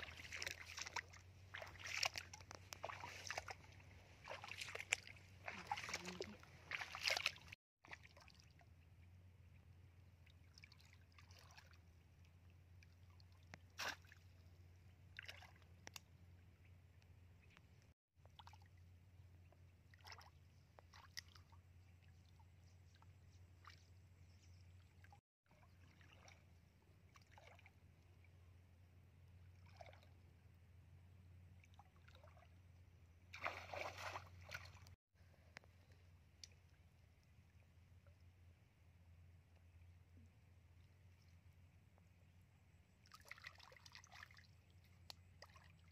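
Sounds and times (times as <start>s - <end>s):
splashing in shallow muddy water: 0.0s - 45.9s.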